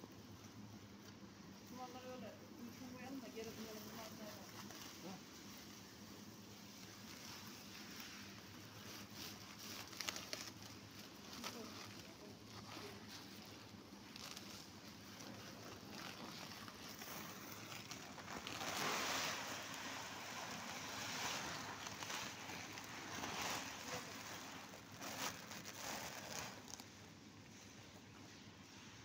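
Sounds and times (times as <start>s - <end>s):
plastic sack rustling: 1.7s - 27.7s.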